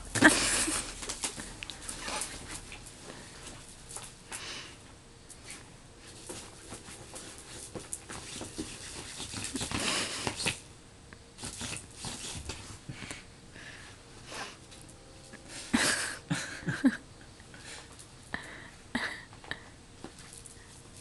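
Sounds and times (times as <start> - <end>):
cats rustling and scrabbling: 0.0 - 4.4, 5.3 - 10.7.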